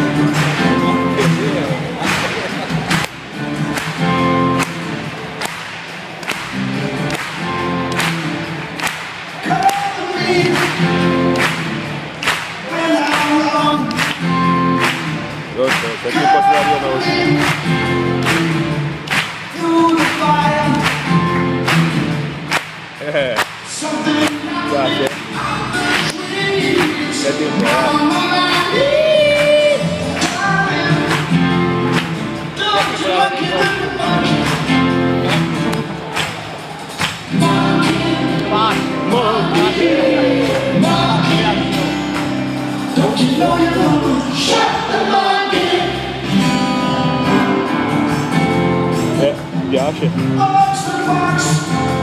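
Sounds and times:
drum backbeat: 0:00.0 - 0:23.8
live rock band with vocals: 0:00.0 - 0:52.0
crowd singing along: 0:06.8 - 0:14.6, 0:15.9 - 0:18.2, 0:23.7 - 0:48.6.

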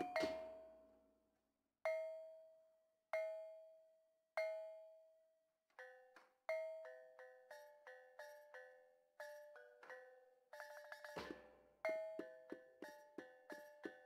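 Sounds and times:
gong-chime music: 0:00.0 - 0:00.7.

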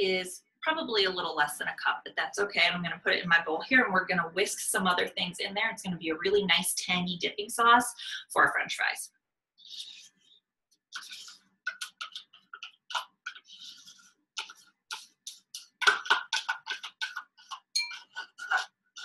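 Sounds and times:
spoon scraping and tapping tub: 0:14.4 - 0:18.6.

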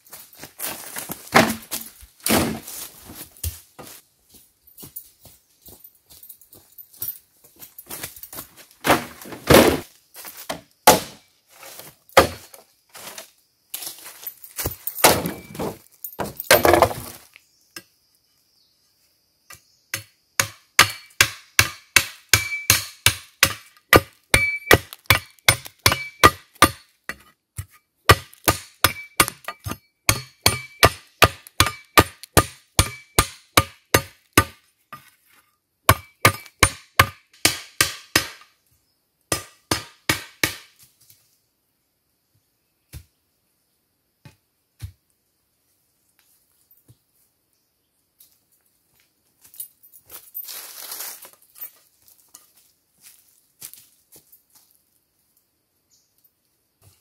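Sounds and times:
bamboo poles clattering: 0:00.6 - 0:03.2, 0:07.8 - 0:13.2, 0:14.0 - 0:17.4
shovel blade chopping bamboo: 0:10.9 - 0:11.2, 0:20.0 - 0:35.1, 0:35.9 - 0:38.5, 0:39.3 - 0:40.8.

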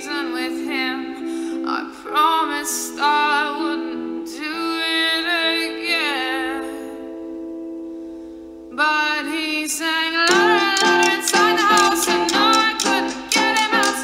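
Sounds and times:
person singing: 0:00.0 - 0:07.2, 0:08.7 - 0:14.0
plucked strings: 0:10.2 - 0:14.0.

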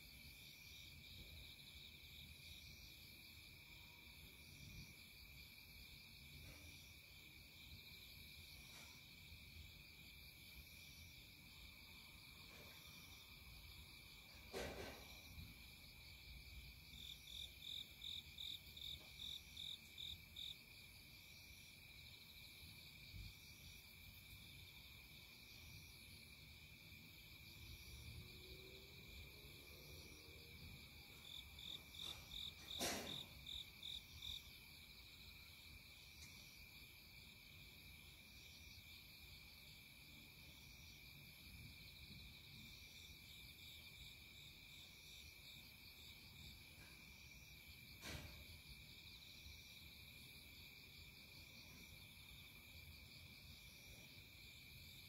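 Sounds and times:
faint insects trilling: 0:00.4 - 0:41.9.

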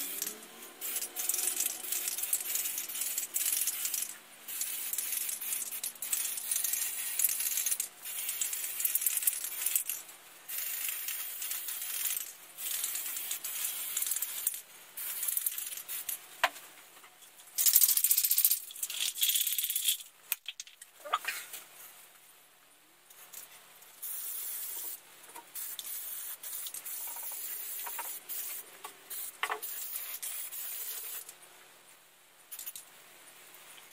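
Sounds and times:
aerosol can spraying: 0:00.0 - 0:09.9, 0:10.5 - 0:16.2, 0:24.0 - 0:31.3
spray can mixing ball rattling: 0:00.0 - 0:16.2, 0:17.6 - 0:20.9, 0:23.2 - 0:31.4, 0:32.5 - 0:32.8.

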